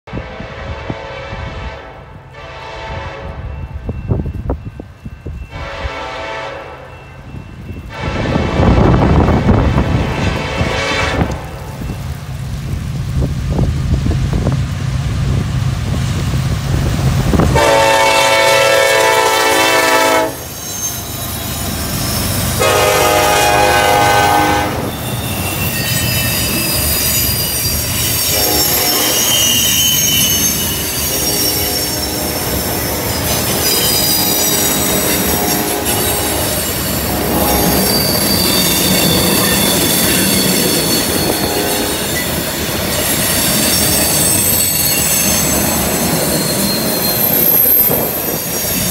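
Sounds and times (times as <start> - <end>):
train horn blasts: 0.1 - 3.9, 5.5 - 7.1, 7.9 - 11.7, 17.5 - 20.5, 22.6 - 25.0, 28.3 - 30.3, 31.1 - 42.1
diesel locomotives rumbling: 0.1 - 48.9
train wheels squealing: 3.4 - 6.1, 6.8 - 8.0, 20.3 - 22.9, 24.8 - 48.9.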